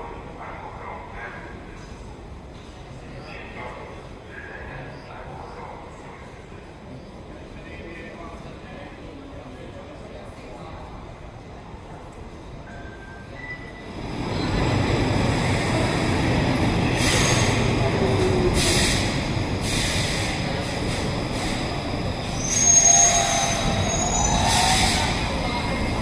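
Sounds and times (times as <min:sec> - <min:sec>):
train rail rumble: 0:13.8 - 0:26.0
metallic wheel squeal: 0:22.4 - 0:25.2.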